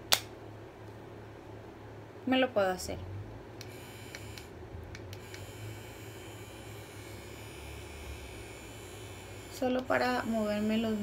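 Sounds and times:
facial brush vibrating hum: 3.1 - 11.0.

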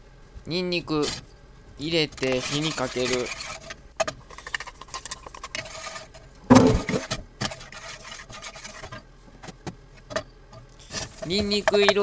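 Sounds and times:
garlic scraped into frying pan: 2.2 - 9.0, 10.8 - 12.0.

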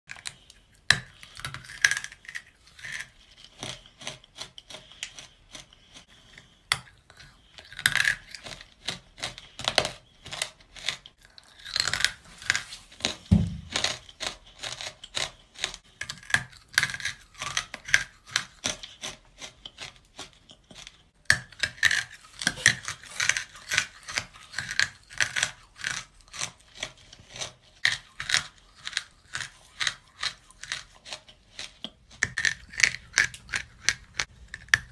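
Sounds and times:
crunching while chewing: 0.1 - 34.9.

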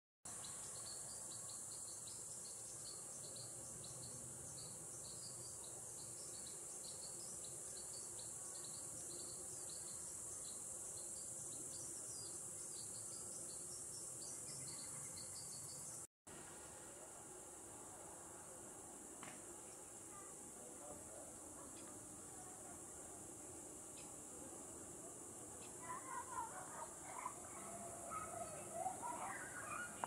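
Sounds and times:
crickets trilling: 21.6 - 30.0.

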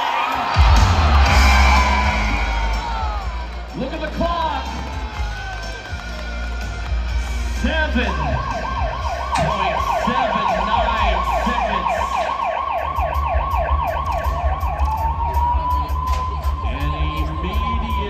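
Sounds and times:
siren over loudspeakers: 7.3 - 18.0.

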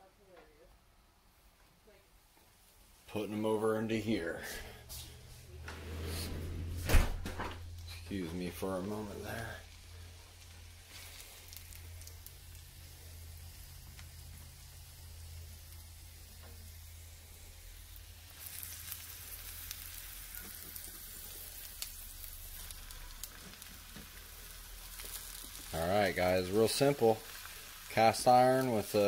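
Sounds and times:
mushrooms sizzling in butter: 7.7 - 29.0.

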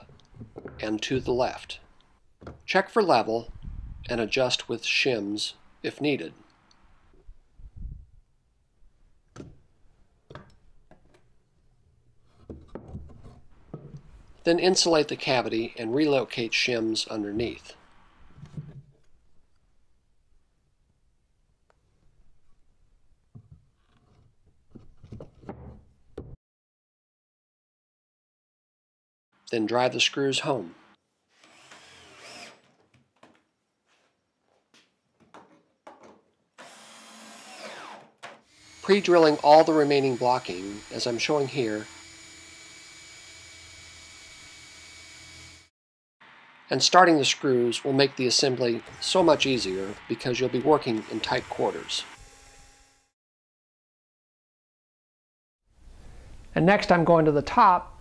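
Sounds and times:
cordless drill driving screws into wood: 31.4 - 32.8, 36.6 - 45.7, 48.8 - 50.1, 50.8 - 52.9.

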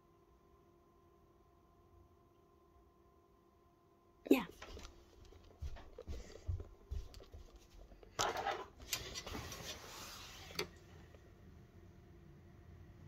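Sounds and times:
soft footsteps indoors: 4.4 - 9.9.

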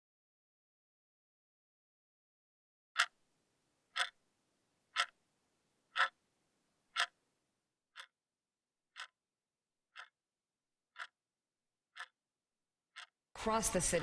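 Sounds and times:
alarm clock ticking: 3.0 - 3.2, 3.9 - 4.2, 4.9 - 5.2, 5.9 - 6.2, 6.9 - 7.2, 7.9 - 8.2, 8.9 - 9.3, 9.9 - 10.3, 10.9 - 11.3, 11.9 - 12.3, 12.9 - 13.6.

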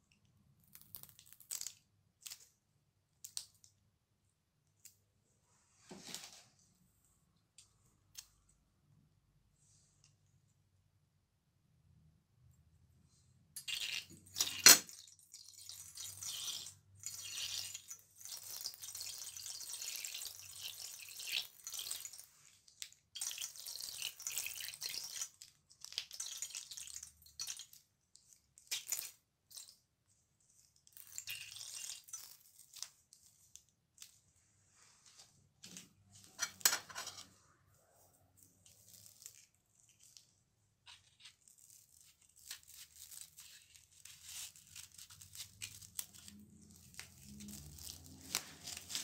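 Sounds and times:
slime squelching out of bag: 44.6 - 49.0.

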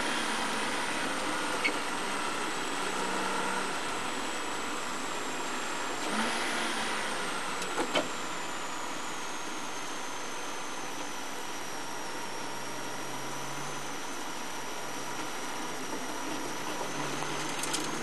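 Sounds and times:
car engine running at low speed: 0.0 - 18.0
high whine falling in pitch: 7.3 - 17.4.

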